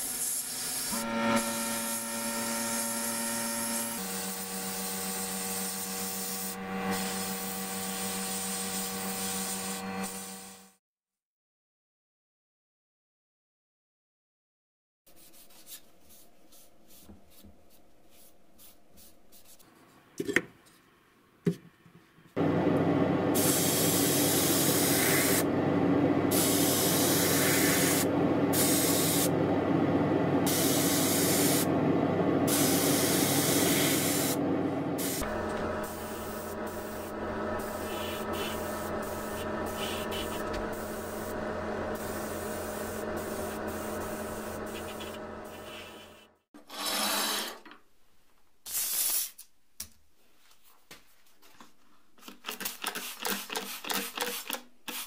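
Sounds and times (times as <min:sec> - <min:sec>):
steady motor hum: 0:00.7 - 0:06.0, 0:22.4 - 0:46.2
spray gun hissing: 0:23.4 - 0:25.5, 0:26.3 - 0:29.3, 0:30.5 - 0:31.7, 0:32.5 - 0:34.4, 0:35.0 - 0:46.2.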